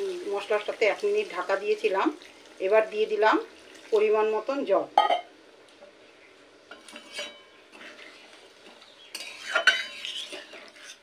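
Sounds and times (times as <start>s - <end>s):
metal spoon scraping a pan: 6.7s - 11.0s.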